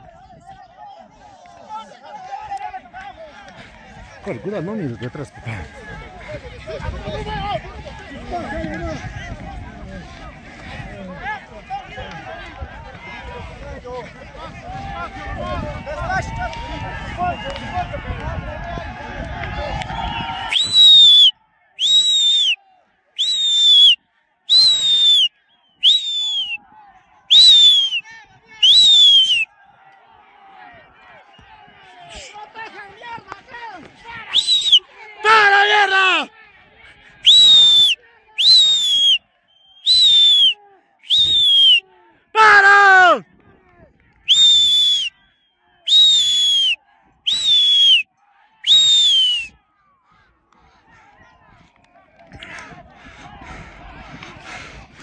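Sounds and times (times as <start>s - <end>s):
piercing whistle calls: 20.5s - 22.6s, 23.2s - 26.6s, 27.3s - 28.0s, 28.6s - 29.4s, 34.3s - 34.8s, 37.3s - 41.8s, 44.3s - 45.1s, 45.9s - 48.0s, 48.7s - 49.5s.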